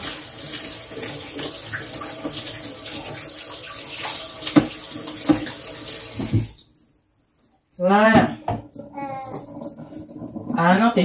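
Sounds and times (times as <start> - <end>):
kitchen tap running: 0.0 - 6.7.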